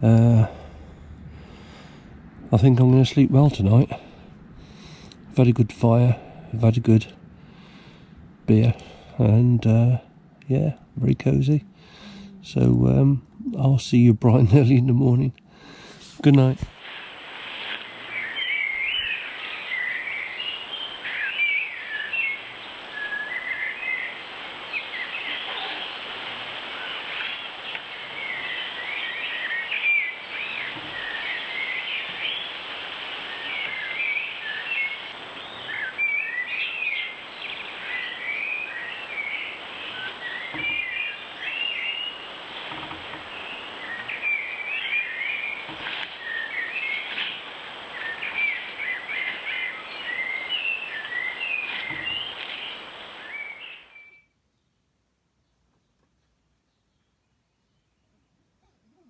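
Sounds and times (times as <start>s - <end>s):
steady background hiss: 0.0s - 55.4s
birds warbling and chirping: 15.7s - 54.2s.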